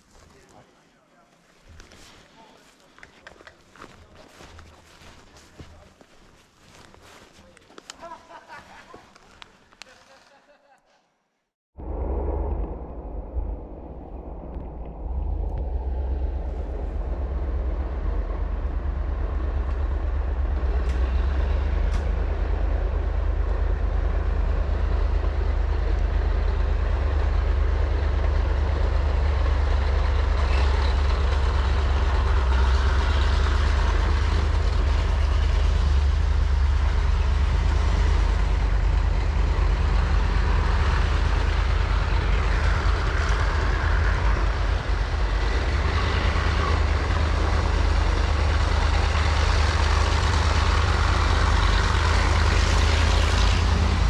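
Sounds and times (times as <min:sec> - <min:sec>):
heavy vehicle engine rumbling: 0:11.8 - 0:54.0.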